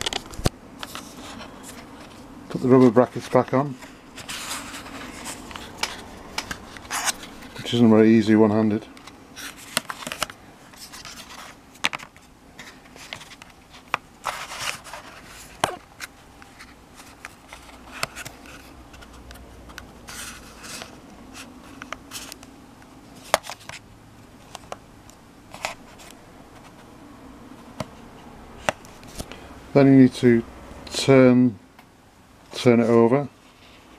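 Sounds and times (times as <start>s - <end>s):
rubber scraping and rubbing: 4.2s - 7.8s.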